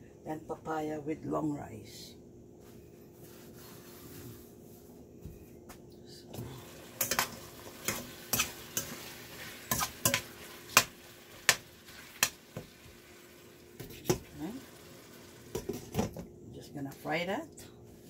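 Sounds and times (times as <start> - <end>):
chicken sizzling in oil: 6.6 - 15.7
metal spoon scraping a pot: 9.6 - 10.3.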